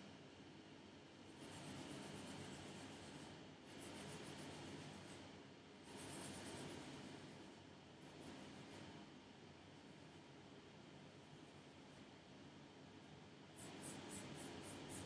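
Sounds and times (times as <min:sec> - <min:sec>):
nail brush brushing: 0:01.3 - 0:08.9, 0:13.6 - 0:15.0.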